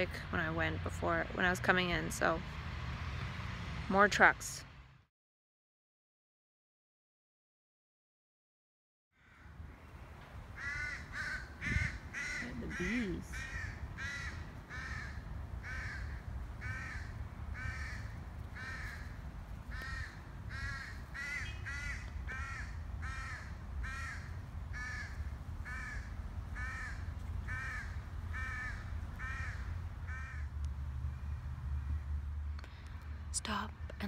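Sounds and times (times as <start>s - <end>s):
low steady rumble: 0.0s - 2.6s, 9.5s - 34.0s
bird calling: 10.6s - 32.2s.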